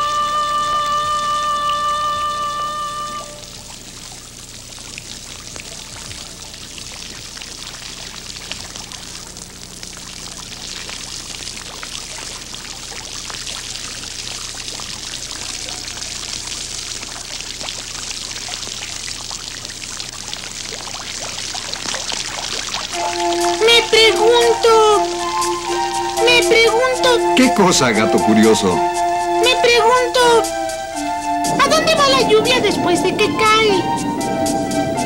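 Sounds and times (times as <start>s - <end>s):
rain falling on puddles: 0.0s - 28.7s.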